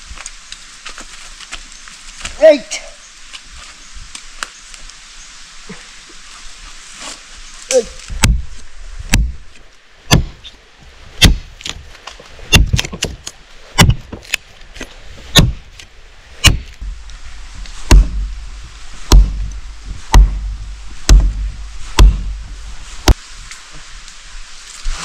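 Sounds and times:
wooden post being chopped: 0:08.1 - 0:08.5, 0:09.1 - 0:09.4, 0:10.1 - 0:10.5, 0:11.2 - 0:11.8, 0:12.5 - 0:13.2, 0:13.8 - 0:14.4, 0:15.3 - 0:15.6, 0:16.4 - 0:16.8, 0:17.8 - 0:18.3, 0:19.1 - 0:23.2.

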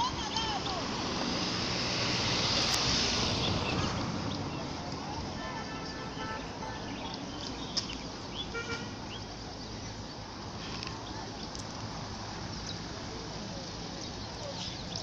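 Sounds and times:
steady rushing background noise: 0:00.0 - 0:15.0
faint distant voices: 0:03.4 - 0:15.0.

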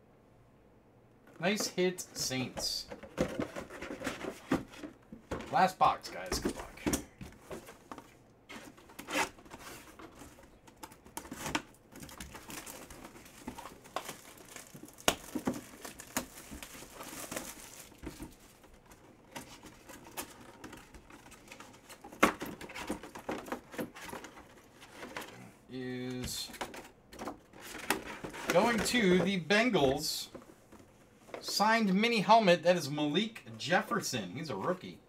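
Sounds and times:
plastic shrink wrap crinkling and tearing: 0:12.0 - 0:18.6.

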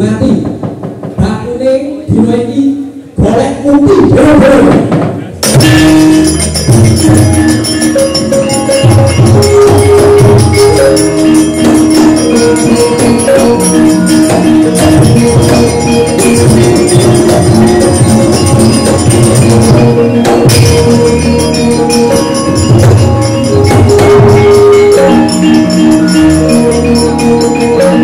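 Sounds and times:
sharp percussive strikes: 0:04.2 - 0:28.0
ringing metallophone notes: 0:05.4 - 0:28.0.

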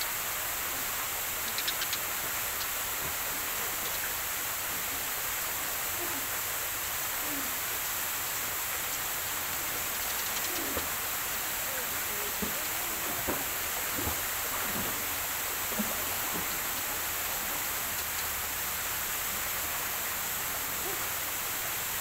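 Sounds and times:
steady outdoor hiss: 0:00.0 - 0:22.0
dove cooing: 0:07.2 - 0:07.7, 0:09.7 - 0:14.2.

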